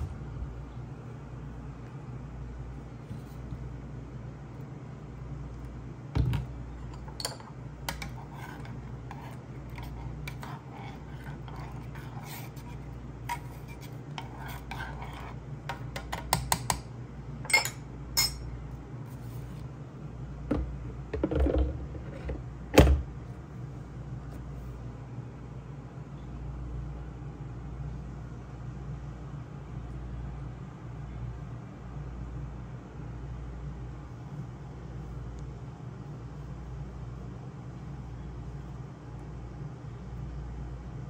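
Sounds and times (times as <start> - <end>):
steady low hum: 0.0 - 41.0
spoon clinking in metal pot: 17.5 - 18.5.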